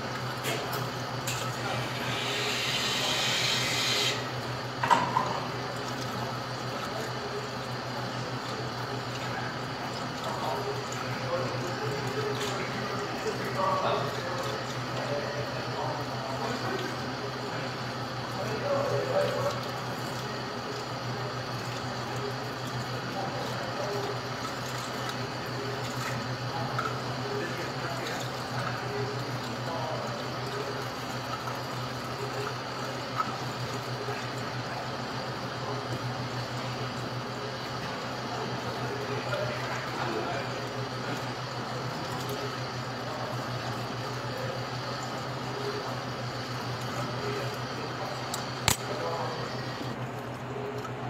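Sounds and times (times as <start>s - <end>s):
tap water running into a strainer: 0.0s - 51.0s.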